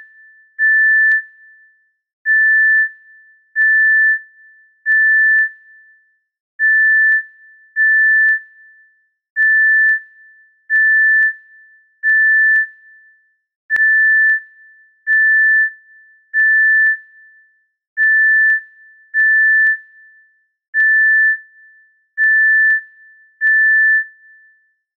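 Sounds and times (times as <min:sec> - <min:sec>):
heart monitor beeping: 0:00.6 - 0:01.2, 0:13.7 - 0:14.4, 0:16.4 - 0:16.9, 0:20.8 - 0:21.3, 0:22.2 - 0:22.7, 0:23.4 - 0:24.0.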